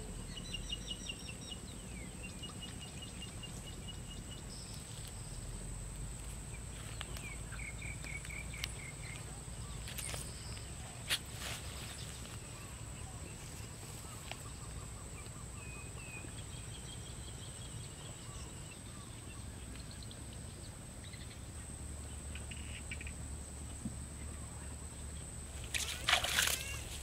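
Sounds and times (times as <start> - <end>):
faint bird chirps: 0.0 - 5.5.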